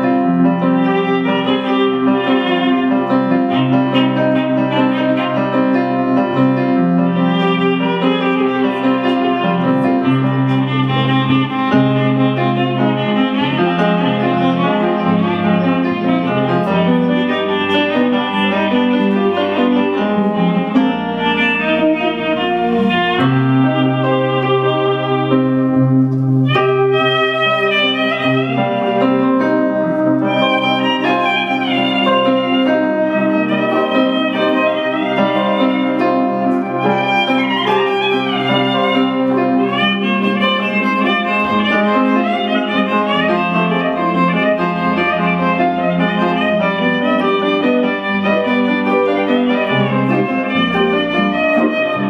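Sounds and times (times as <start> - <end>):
electronic keyboard chords: 0.0 - 52.0
guitar accompanying: 0.0 - 52.0
violin melody with gliding notes: 0.0 - 52.0.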